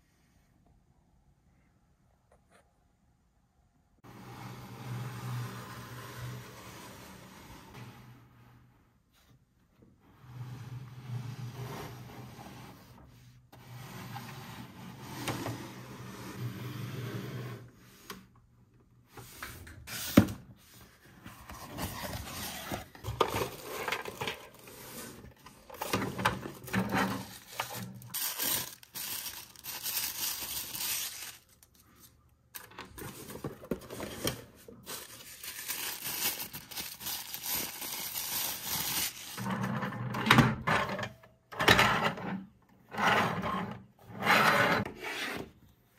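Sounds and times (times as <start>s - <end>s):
plastic parts scraping and knocking: 21.2s - 30.0s, 32.6s - 35.2s
tissue paper rustling: 26.6s - 32.2s, 33.0s - 39.4s.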